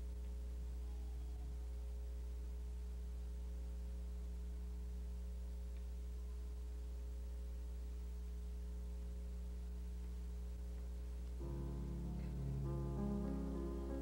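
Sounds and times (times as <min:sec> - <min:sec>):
electrical mains hum: 0:00.0 - 0:14.0
piano notes: 0:11.4 - 0:14.0.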